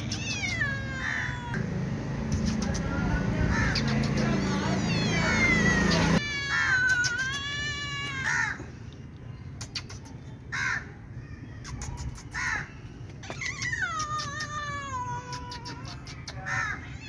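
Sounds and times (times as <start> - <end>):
cat meowing: 0.0 - 1.6, 3.5 - 8.7, 13.2 - 17.0.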